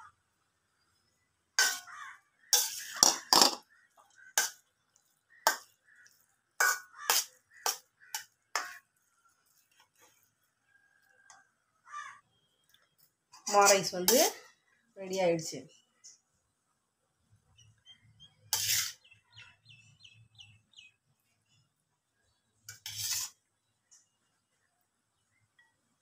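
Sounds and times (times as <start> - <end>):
metal spatula clinking in pan: 1.6 - 1.9.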